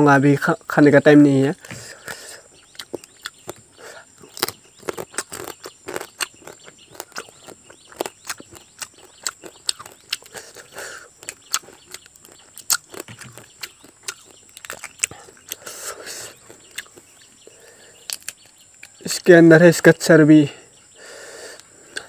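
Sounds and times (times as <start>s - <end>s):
chewing: 2.0s - 19.0s, 21.5s - 22.0s
crab shell cracking: 4.3s - 10.4s.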